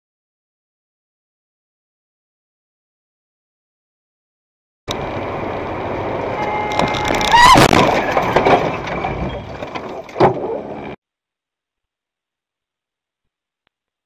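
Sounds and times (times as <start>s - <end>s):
road and engine noise: 4.9s - 11.0s
rising squeal: 5.8s - 10.1s
bang: 6.7s - 9.6s.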